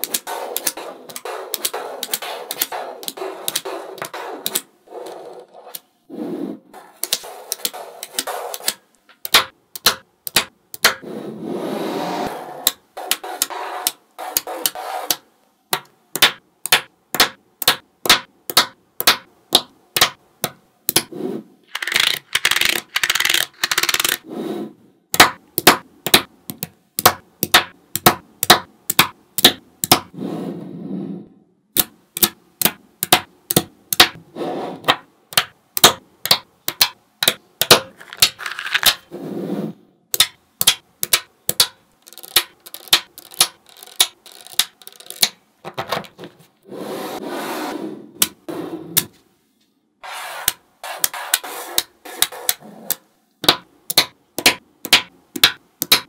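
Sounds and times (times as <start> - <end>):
magnetic balls clicking: 0.0 - 4.7, 21.7 - 24.2, 35.3 - 39.0, 40.1 - 45.4, 52.2 - 56.0
magnet balls rattling: 21.7 - 24.2, 37.9 - 39.1, 41.5 - 45.8.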